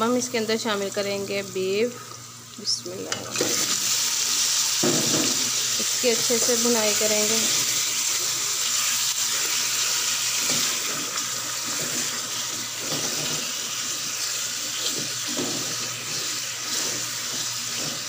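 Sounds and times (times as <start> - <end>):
meat sizzling in hot oil: 0.0 - 18.0
spatula scraping: 14.7 - 18.0.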